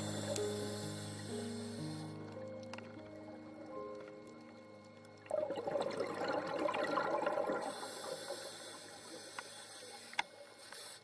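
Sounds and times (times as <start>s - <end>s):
high steady hiss: 0.0s - 5.2s, 7.6s - 11.0s
water bubbling underwater: 2.2s - 9.2s.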